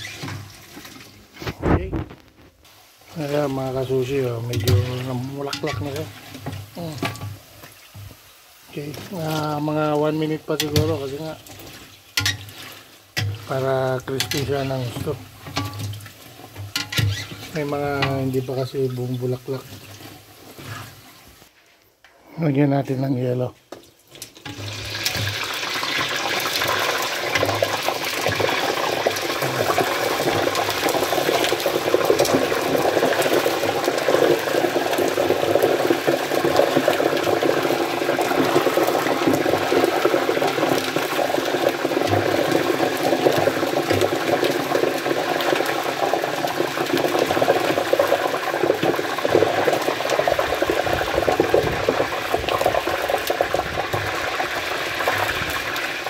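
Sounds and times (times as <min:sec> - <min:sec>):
deep-frying sizzling and bubbling: 0:00.0 - 0:21.6, 0:23.0 - 0:56.0.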